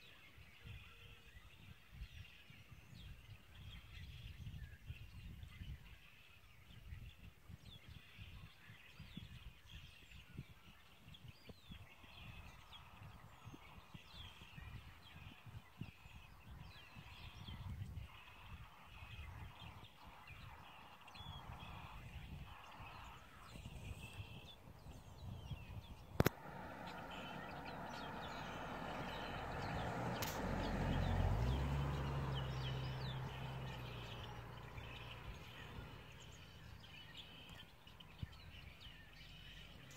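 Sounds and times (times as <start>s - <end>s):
small birds chirping: 0.0s - 39.9s
wind rumbling on microphone: 0.0s - 39.9s
vehicle passing: 26.2s - 37.4s.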